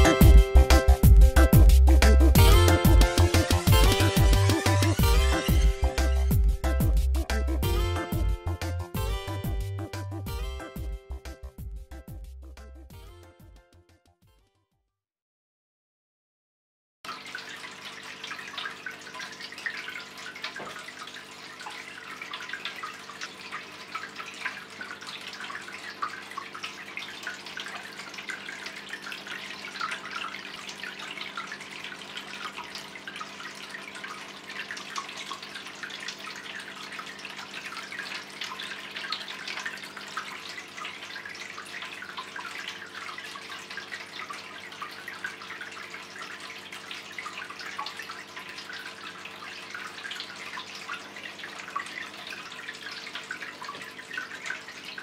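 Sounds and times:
fountain water trickling and splashing: 17.1s - 55.0s.

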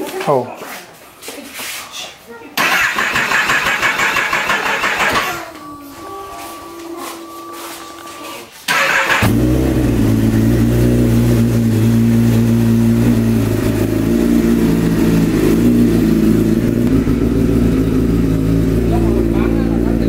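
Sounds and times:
motorcycle engine idling: 8.8s - 20.0s.

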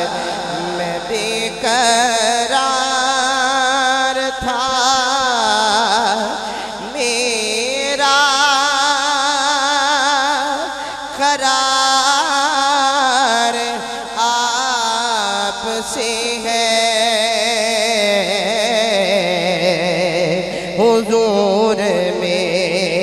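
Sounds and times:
man singing: 0.0s - 23.0s.

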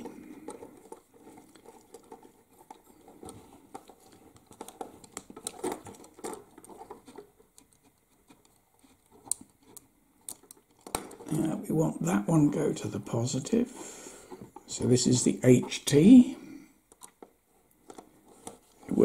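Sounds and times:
clicks and scratches from wires: 0.0s - 11.5s, 16.9s - 19.0s.

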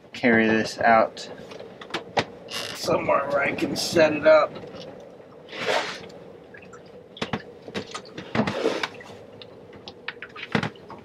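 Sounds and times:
fuel dripping and trickling: 4.6s - 11.0s.

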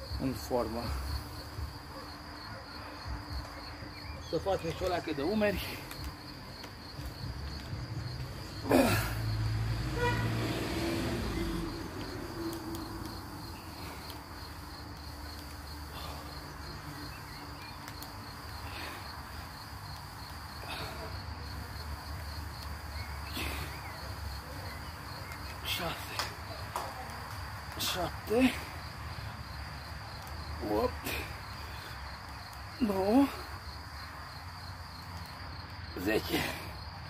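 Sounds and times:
crickets chirring: 0.0s - 37.0s
vehicle passing: 5.0s - 32.0s.

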